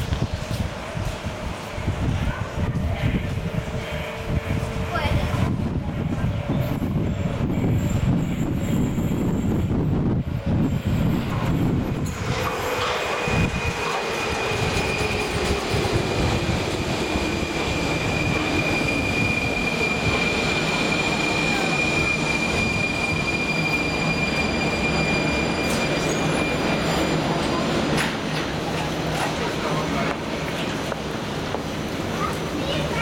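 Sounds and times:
train low rumble: 0:00.0 - 0:33.0
brakes squealing: 0:10.6 - 0:31.0
train whine falling in pitch: 0:10.7 - 0:28.2.

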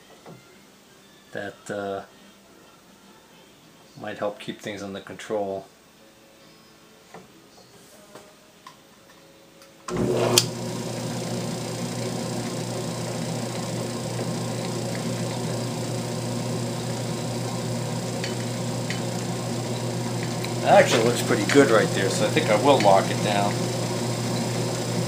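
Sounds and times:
metal lathe motor humming: 0:09.9 - 0:25.0.

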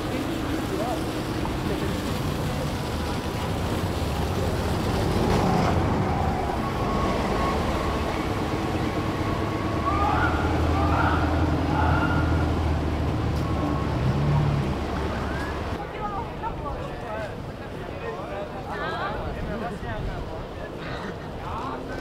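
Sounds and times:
bus engine running: 0:00.0 - 0:15.8
tyre noise on snowy road: 0:00.0 - 0:15.8.

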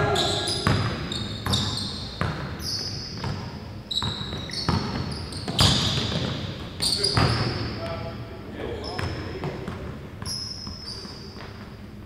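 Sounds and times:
basketball bouncing on hardwood: 0:03.2 - 0:07.5.

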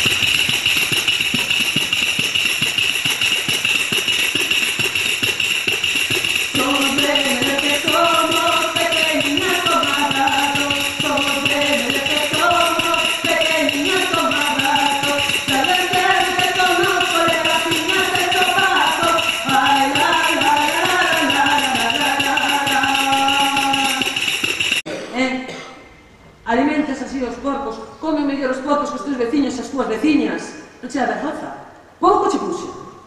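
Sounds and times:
tambourine shakes and strikes: 0:00.0 - 0:24.9
woman singing: 0:06.5 - 0:24.4.

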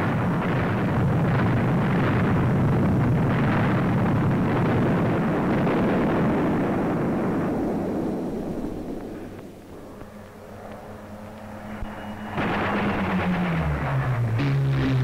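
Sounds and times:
shell explosions: 0:00.0 - 0:09.7, 0:12.3 - 0:14.6.

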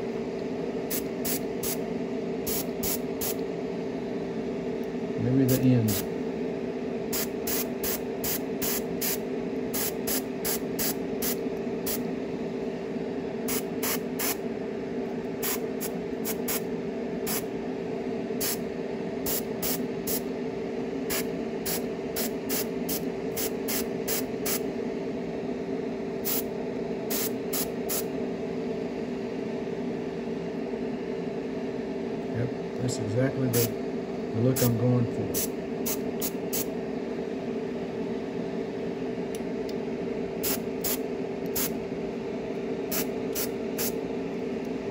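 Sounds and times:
steady hum: 0:00.0 - 0:44.9
airbrush spraying hissing bursts: 0:00.9 - 0:01.8, 0:02.5 - 0:03.4, 0:07.1 - 0:12.0, 0:13.5 - 0:14.4, 0:15.4 - 0:16.6, 0:18.4 - 0:18.6, 0:19.3 - 0:20.2, 0:21.1 - 0:24.6, 0:27.1 - 0:28.0, 0:40.4 - 0:41.7, 0:42.9 - 0:44.0.

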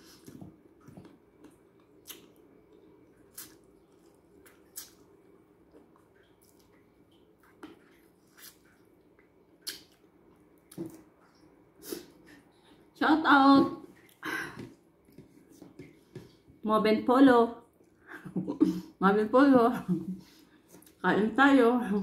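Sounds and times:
person chewing: 0:00.0 - 0:12.8
faint steady hum: 0:00.0 - 0:22.0
wet lip smacks: 0:09.6 - 0:10.1.

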